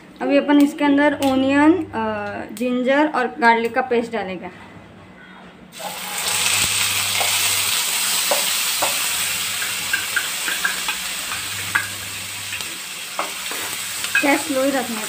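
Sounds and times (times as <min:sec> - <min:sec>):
paste sizzling in hot oil: 0:05.8 - 0:15.0
steel bowl clicking on pan: 0:08.2 - 0:12.0, 0:14.0 - 0:14.4.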